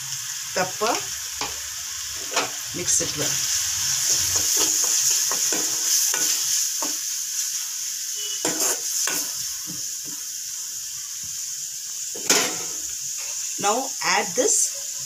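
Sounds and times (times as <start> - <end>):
masala sizzling in hot oil: 0.0 - 15.0
metal spoon scraping pan: 4.0 - 7.0, 8.3 - 9.4.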